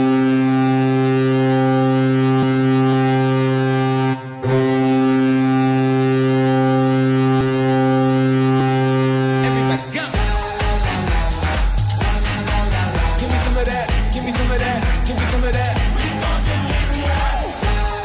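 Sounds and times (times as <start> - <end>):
arena goal horn blast: 0.0 - 14.1.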